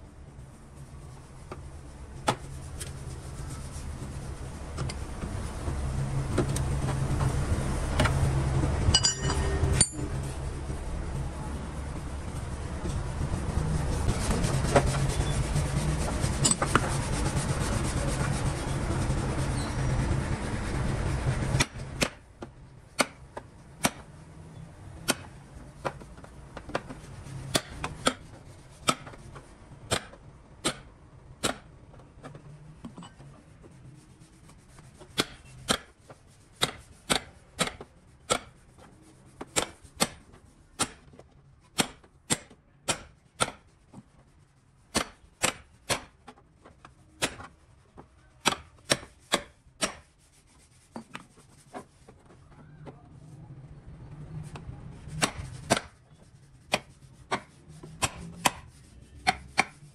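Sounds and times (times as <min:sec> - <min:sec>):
hand tool tapping car body: 0:21.6 - 0:24.1, 0:25.0 - 0:29.2, 0:29.9 - 0:31.7, 0:36.6 - 0:38.6, 0:41.8 - 0:43.7, 0:44.9 - 0:46.4, 0:48.4 - 0:50.1.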